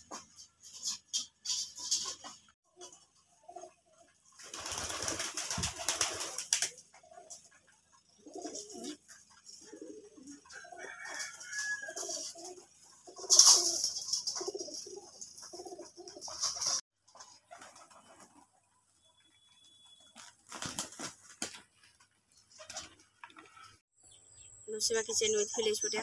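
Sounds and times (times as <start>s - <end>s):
pigeons cooing: 2.8s - 5.1s, 5.8s - 16.8s
wings flapping: 3.6s - 7.6s, 11.1s - 18.6s, 20.0s - 23.7s.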